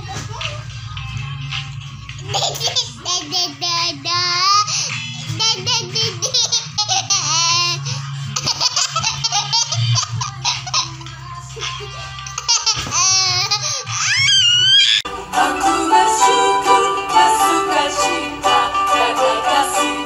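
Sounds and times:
young boy laughing: 2.2s - 4.6s, 5.2s - 15.0s.

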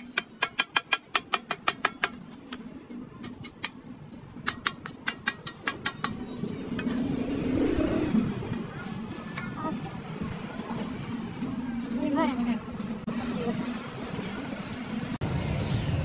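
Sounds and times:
low rumble: 6.4s - 9.2s.

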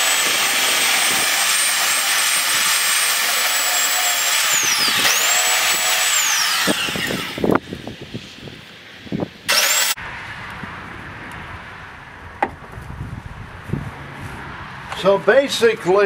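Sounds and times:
belt sander running: 0.0s - 7.6s, 9.5s - 10.0s.

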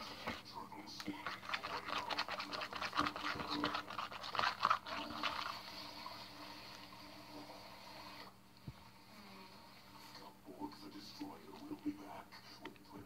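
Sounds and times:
spoon scraping sticky slime: 1.0s - 5.8s.

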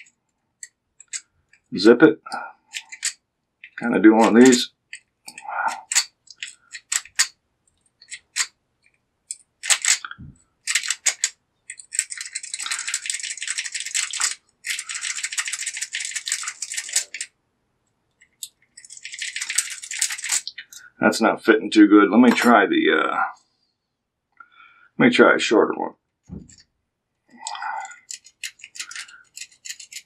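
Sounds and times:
small metal clicks: 0.0s - 1.7s, 2.7s - 17.3s, 18.1s - 20.9s, 27.4s - 30.0s
lock pick rattling in padlock: 2.7s - 8.5s, 9.3s - 17.3s, 18.2s - 20.5s, 27.4s - 30.0s.

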